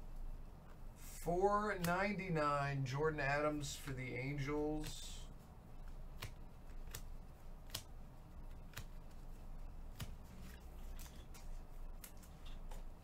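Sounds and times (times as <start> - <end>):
steady low hum: 0.0 - 13.0
cards clicking together: 6.2 - 7.1, 7.7 - 7.9, 8.6 - 9.0.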